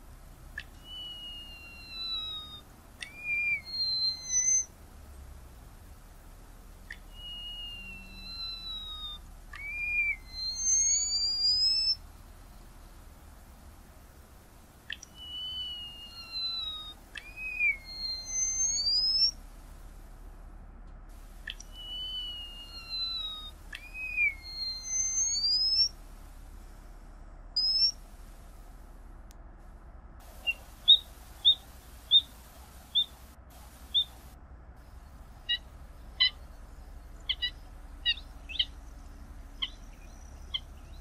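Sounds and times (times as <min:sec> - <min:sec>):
bird drawn-out whistles: 0:00.8 - 0:04.7, 0:07.0 - 0:12.0, 0:14.9 - 0:19.4, 0:21.5 - 0:26.0, 0:27.6 - 0:28.0, 0:30.4 - 0:32.3, 0:32.9 - 0:34.2, 0:39.5 - 0:41.0
bird clicks: 0:03.0 - 0:04.5, 0:06.8 - 0:07.2, 0:08.4 - 0:10.8, 0:14.8 - 0:15.4, 0:16.2 - 0:19.0, 0:20.9 - 0:22.0, 0:22.9 - 0:24.3.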